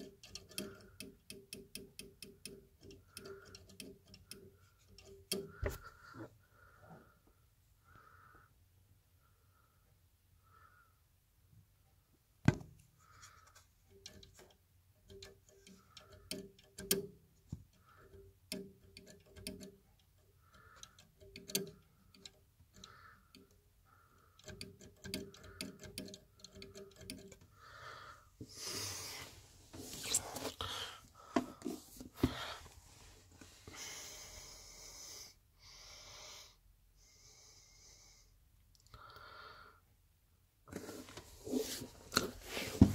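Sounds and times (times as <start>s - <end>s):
fan blades ticking and clicking: 0.0s - 6.1s, 12.8s - 28.5s.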